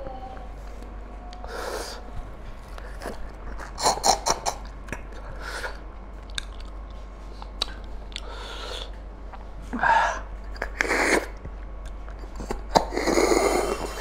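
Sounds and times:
wet mouth clicks: 6.3s - 6.8s, 7.4s - 9.4s.

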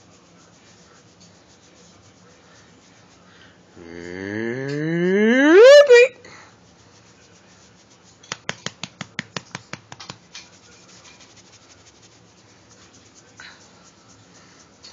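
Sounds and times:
faint room noise: 0.0s - 14.9s.

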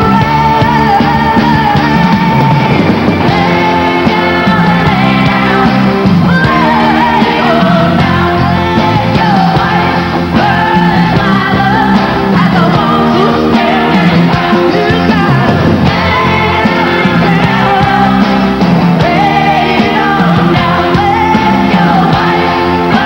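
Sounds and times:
live band playing: 0.0s - 23.0s
person singing: 0.0s - 23.0s.

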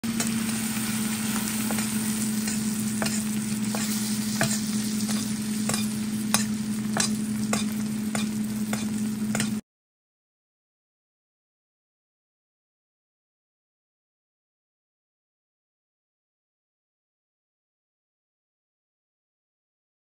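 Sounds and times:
low hum: 0.0s - 9.6s
meat sizzling in butter: 0.0s - 9.6s
metal spoon clicking on pan: 1.6s - 9.6s.

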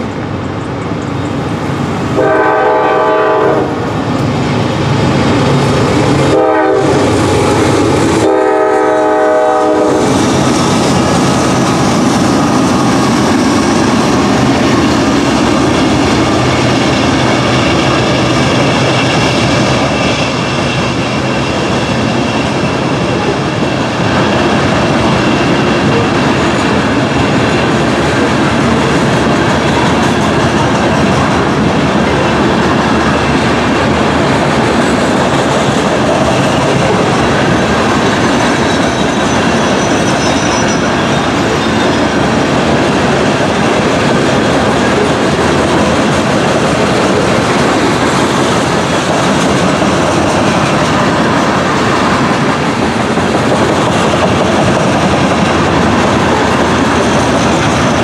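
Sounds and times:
diesel locomotives rumbling: 0.0s - 58.0s
train horn: 2.1s - 3.9s, 6.3s - 7.1s, 8.2s - 10.2s
steel wheels clattering on rails: 9.7s - 58.0s.

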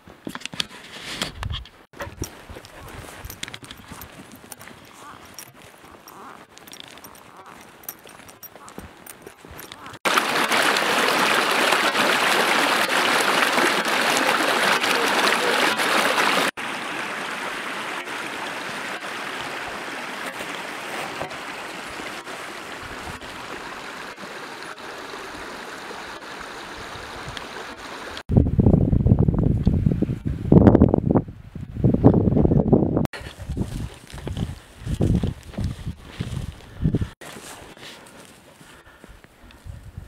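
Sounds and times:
stream water rushing: 2.9s - 28.2s.

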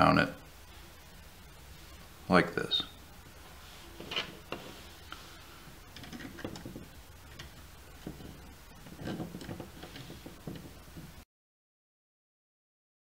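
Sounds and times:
plastic rubbing: 3.8s - 11.2s.

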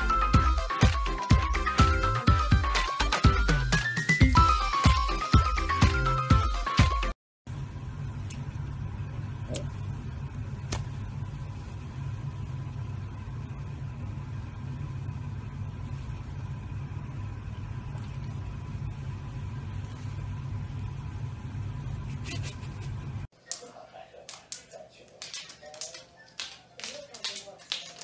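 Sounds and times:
low-pitched hum: 7.5s - 23.3s.

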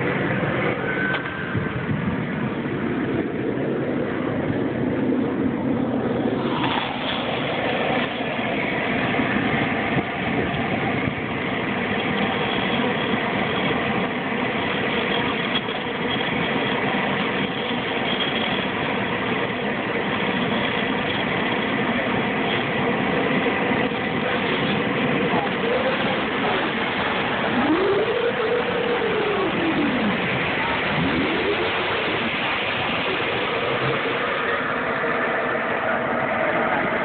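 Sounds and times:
model jet turbines whining: 0.0s - 37.0s.

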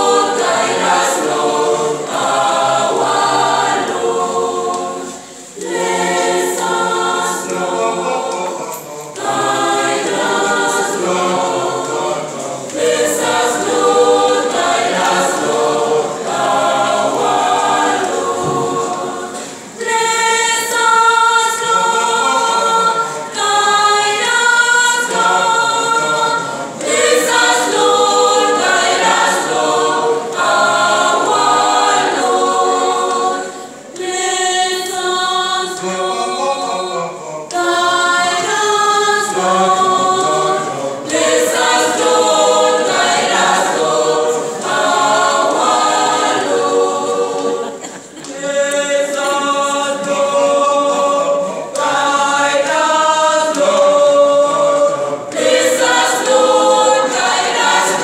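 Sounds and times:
choir singing a cappella: 0.0s - 58.0s
singers breathing: 19.4s - 19.8s.

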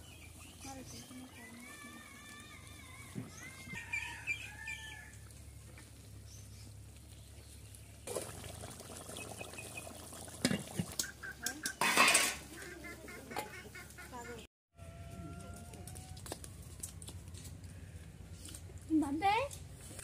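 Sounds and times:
steel plates and pots clinking: 11.6s - 12.5s.

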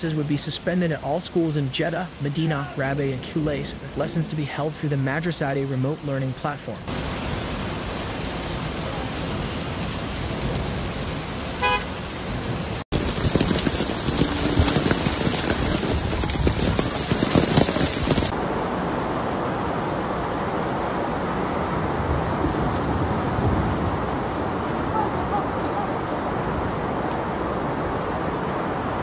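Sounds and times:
fast-flowing floodwater: 0.0s - 12.4s, 13.6s - 29.0s
heavy rain pouring: 0.0s - 29.0s
car horn: 11.6s - 12.0s.

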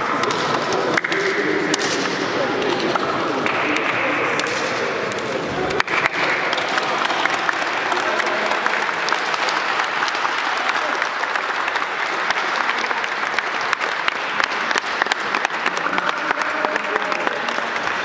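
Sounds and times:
crowd applauding: 5.5s - 18.0s.

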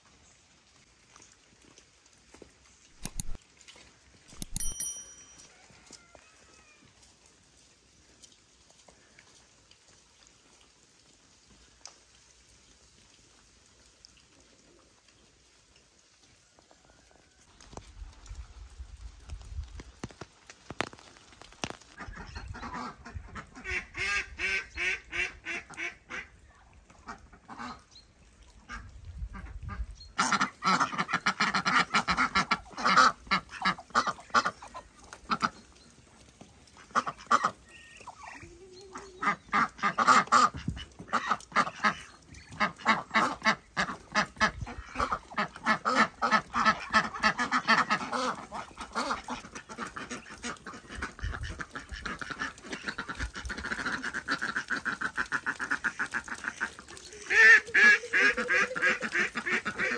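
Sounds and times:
ducks quacking: 22.0s - 26.4s, 27.0s - 27.9s, 28.6s - 35.7s, 36.7s - 59.9s.

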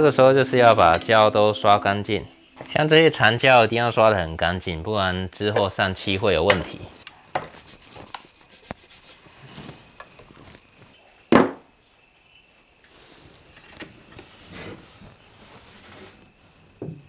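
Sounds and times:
brush scrubbing wood: 7.5s - 10.7s.

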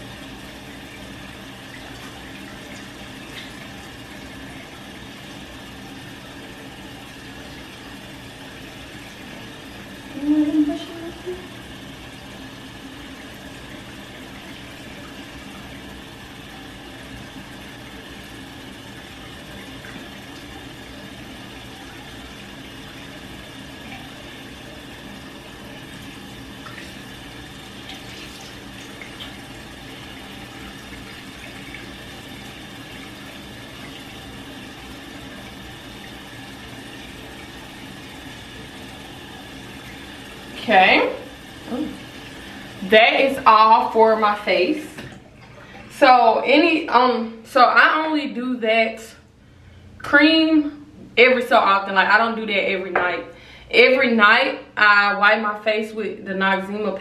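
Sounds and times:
tap water rushing into sink: 0.0s - 10.0s, 13.0s - 44.0s, 44.8s - 45.9s.

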